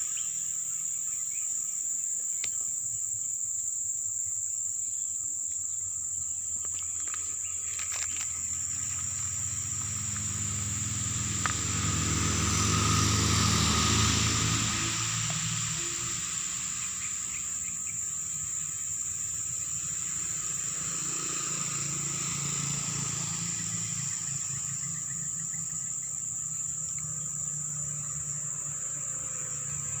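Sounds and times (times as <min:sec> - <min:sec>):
insects droning: 0:00.0 - 0:30.0
motorcycles passing: 0:07.0 - 0:30.0.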